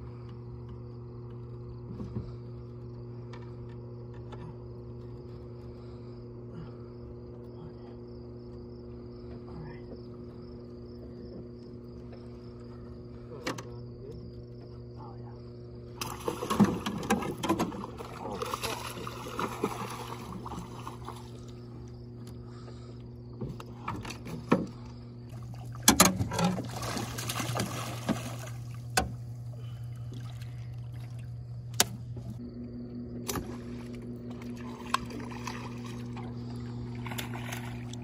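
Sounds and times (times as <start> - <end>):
steady low hum: 0.0 - 38.0
arrows splashing into water: 16.0 - 21.3, 25.8 - 29.2, 33.2 - 36.2
fish thrashing at surface: 16.0 - 21.5, 25.5 - 28.8.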